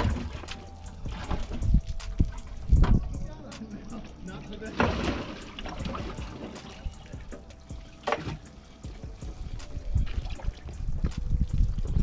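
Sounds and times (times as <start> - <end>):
water trickling and sloshing: 0.0 - 12.0
splash: 4.7 - 6.9.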